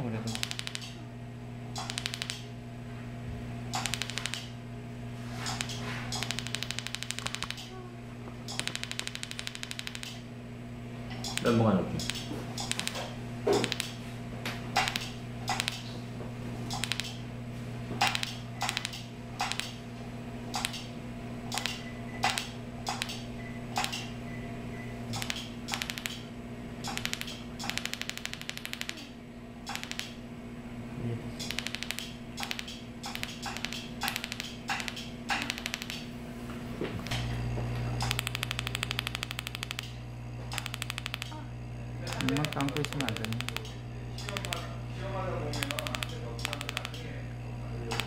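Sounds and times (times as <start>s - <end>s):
low electrical hum: 0.0s - 48.0s
laser handpiece clicking: 0.3s - 1.0s, 1.8s - 2.4s, 3.7s - 4.5s, 5.5s - 7.7s, 8.5s - 10.2s, 11.2s - 13.0s, 13.6s - 14.0s, 14.8s - 15.8s, 16.7s - 17.2s, 18.0s - 19.8s, 20.5s - 20.9s, 21.5s - 23.2s, 23.8s - 24.1s, 25.1s - 26.2s, 26.8s - 29.0s, 29.7s - 30.2s, 31.4s - 36.1s, 38.0s - 41.4s, 42.1s - 44.7s, 45.5s - 47.1s.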